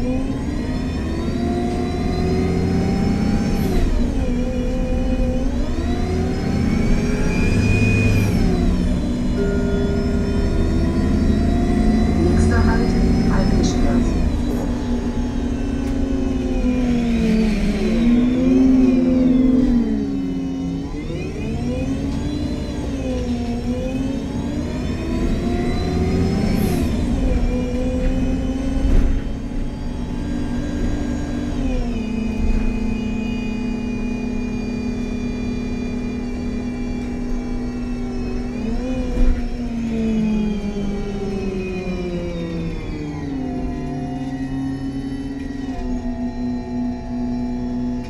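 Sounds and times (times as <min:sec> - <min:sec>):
bus drive-train whine: 0:00.0 - 0:48.0.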